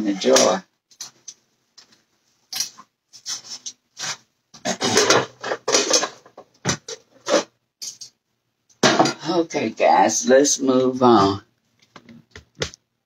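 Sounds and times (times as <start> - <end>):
kitchen utensils knocking and clattering: 4.6 - 8.2, 8.8 - 9.2.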